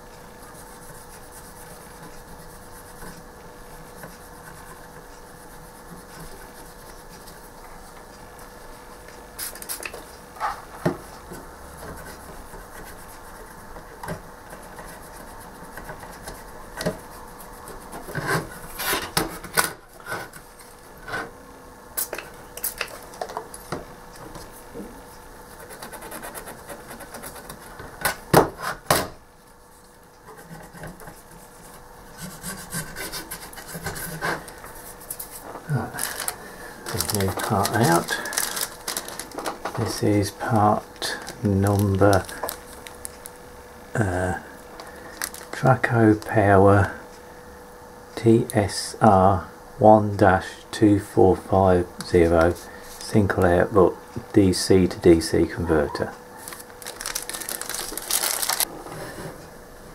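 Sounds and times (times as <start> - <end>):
cotton bud scrubbing circuit board: 0.0 - 7.6, 11.9 - 19.0, 25.4 - 27.8, 30.2 - 36.3.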